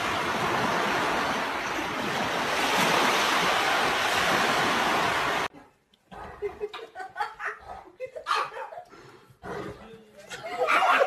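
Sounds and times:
ocean surf washing on beach: 0:00.0 - 0:05.5.

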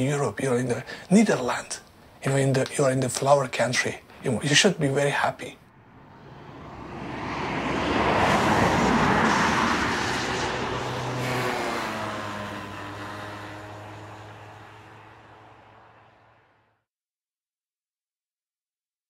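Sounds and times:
vehicle passing by: 0:05.7 - 0:16.6.

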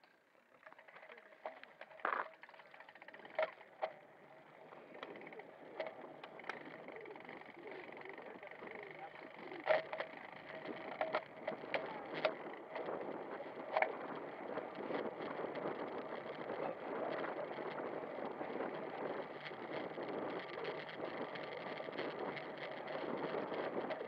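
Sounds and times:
bike clicks and rattles: 0:00.0 - 0:24.0
tyre and wind noise: 0:03.1 - 0:24.0.

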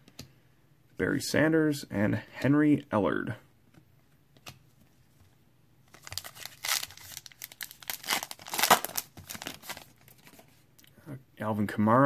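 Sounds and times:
foil wrapper tearing and crinkling: 0:05.9 - 0:09.9.

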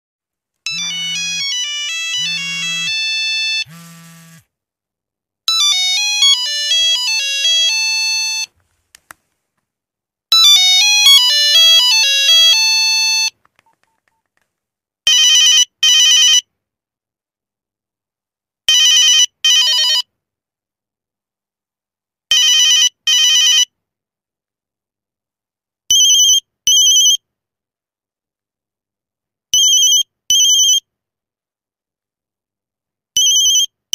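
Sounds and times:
phone ringtone melodies: 0:00.7 - 0:04.0, 0:05.5 - 0:08.5, 0:10.3 - 0:13.3.

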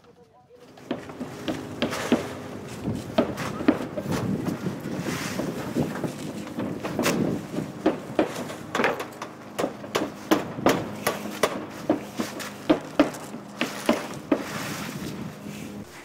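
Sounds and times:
hammer driving nails into plywood: 0:00.8 - 0:02.3, 0:03.2 - 0:04.6, 0:06.5 - 0:14.6.

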